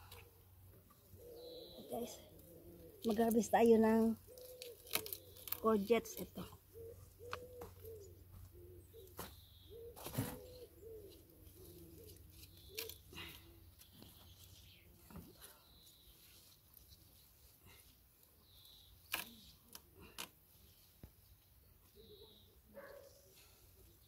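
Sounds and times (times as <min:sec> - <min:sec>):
dove cooing: 0:01.0 - 0:03.6, 0:04.2 - 0:05.4, 0:06.6 - 0:13.6, 0:22.0 - 0:23.3.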